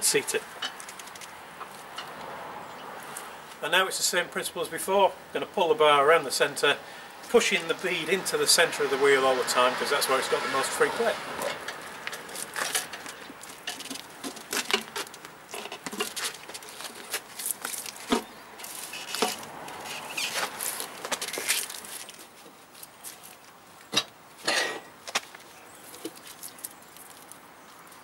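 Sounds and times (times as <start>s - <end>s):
tyre bar creaking and scraping rim: 7.4s - 22.2s.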